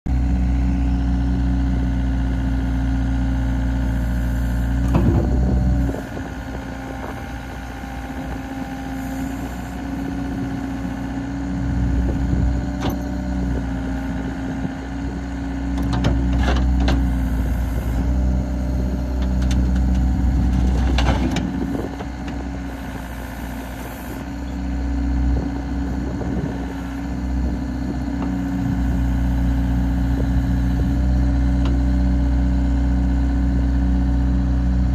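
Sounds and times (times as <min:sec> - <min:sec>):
excavator diesel engine running: 0:00.1 - 0:34.9.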